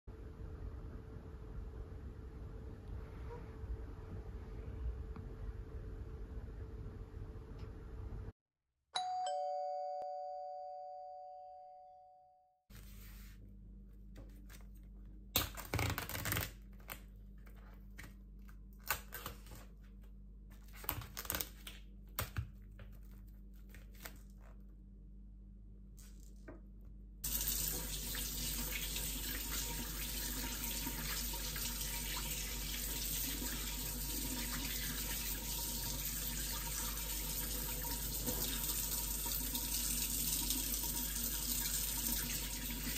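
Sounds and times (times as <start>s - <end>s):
two-note bell chime: 9.0s - 12.4s
plastic wrap crinkling and tearing: 15.4s - 17.5s, 20.6s - 21.8s
kitchen tap running water: 27.2s - 42.9s.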